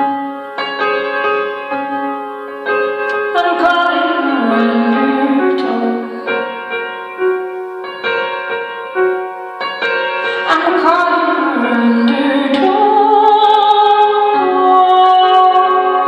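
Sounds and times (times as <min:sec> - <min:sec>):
keyboard piano chords: 0:00.0 - 0:16.0
woman singing: 0:03.2 - 0:06.4, 0:10.4 - 0:16.0.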